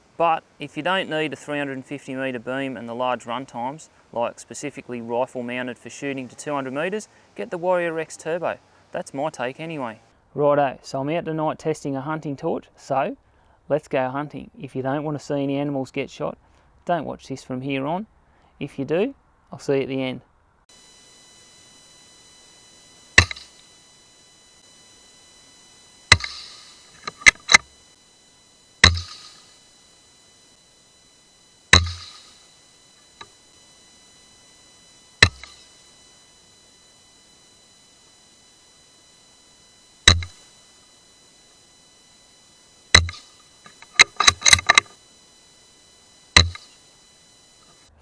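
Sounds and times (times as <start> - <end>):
faint high steady whine: 0.0 - 48.0
sharp clicks: 21.5 - 24.0, 26.0 - 36.8, 38.0 - 40.6, 42.7 - 45.1, 46.2 - 47.9.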